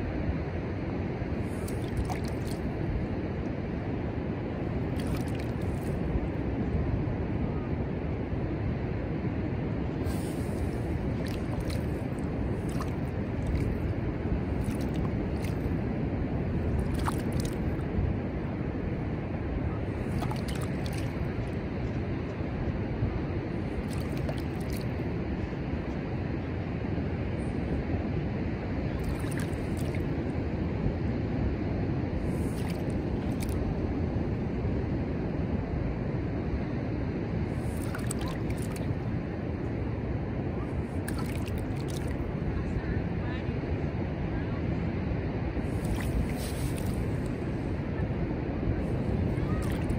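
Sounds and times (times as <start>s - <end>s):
ocean surf rushing: 0.0s - 25.4s
wind buffeting the microphone: 0.0s - 49.9s.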